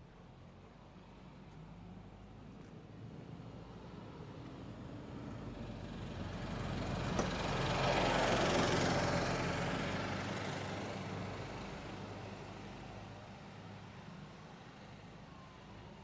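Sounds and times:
vehicle passing by: 3.6 - 13.1.

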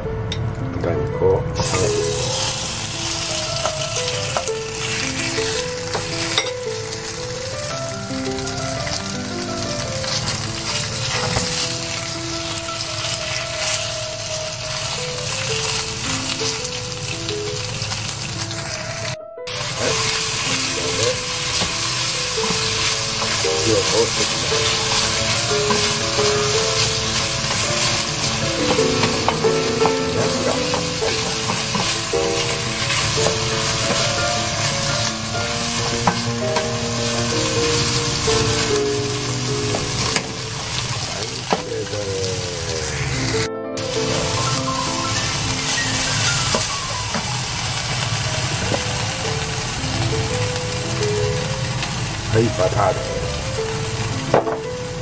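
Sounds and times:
background music with held notes: 0.0 - 55.0
meat sizzling in a frying pan: 1.6 - 55.0
spatula clicking and scraping pan: 21.5 - 36.8.

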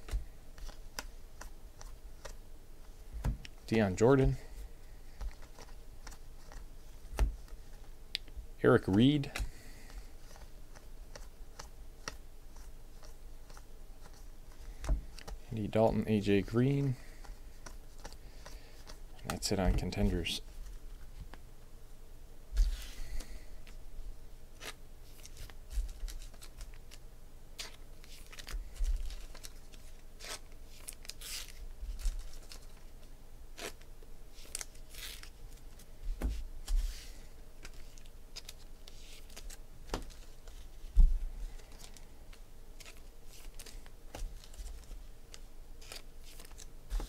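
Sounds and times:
packaging tearing and crinkling: 45.8 - 46.7.

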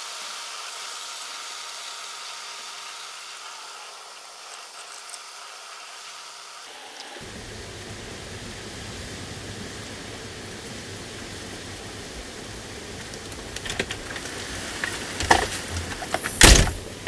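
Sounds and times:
steady rain falling: 2.6 - 17.0
knocks and bumps: 14.8 - 17.0.

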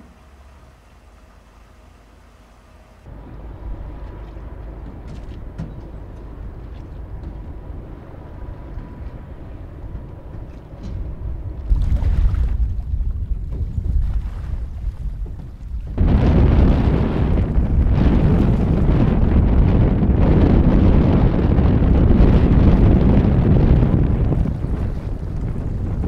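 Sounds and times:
boat diesel engine rumble: 0.0 - 26.0
wind buffeting microphone: 3.1 - 26.0.

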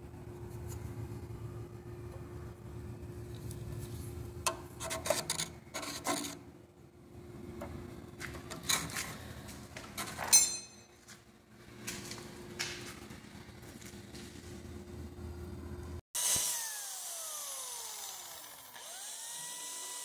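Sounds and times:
steady machine hum: 0.0 - 5.8, 6.4 - 16.0
scriber scratching metal: 4.7 - 6.4.

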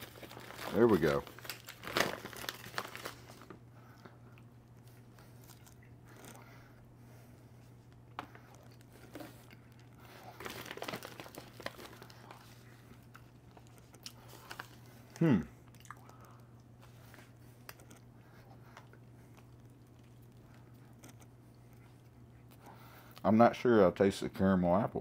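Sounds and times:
steady low hum: 0.0 - 25.0
person chewing crunchy snack: 4.3 - 6.6, 7.9 - 23.2.

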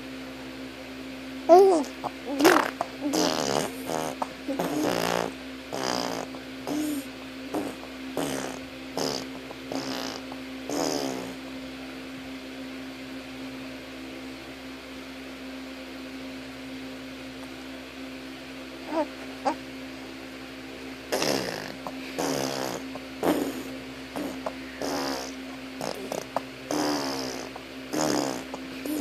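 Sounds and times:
steady low hum: 0.0 - 29.0
buzzy fart-like mouth noises: 1.5 - 11.4, 21.1 - 29.0.

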